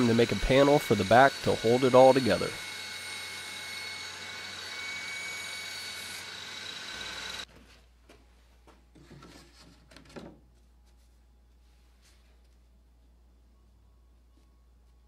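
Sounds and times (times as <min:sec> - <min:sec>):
table saw whining: 0:00.0 - 0:07.5.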